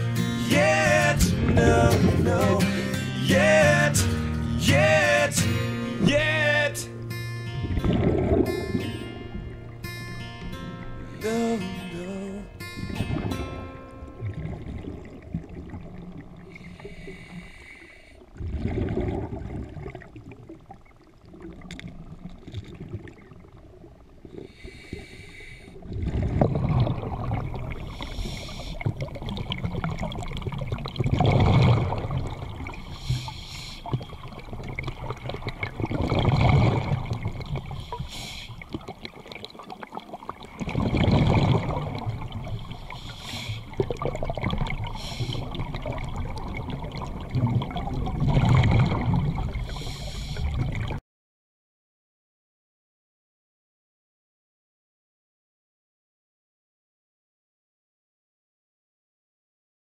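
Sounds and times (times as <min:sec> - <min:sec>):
diver breathing through regulator: 0:04.0 - 0:04.6, 0:16.5 - 0:18.3, 0:24.3 - 0:25.9, 0:27.7 - 0:29.0, 0:32.6 - 0:34.2, 0:36.0 - 0:38.8, 0:42.6 - 0:43.9, 0:44.8 - 0:46.0, 0:48.3 - 0:50.8
bubbling rush of exhale: 0:07.5 - 0:09.7, 0:12.8 - 0:20.5, 0:24.2 - 0:51.0.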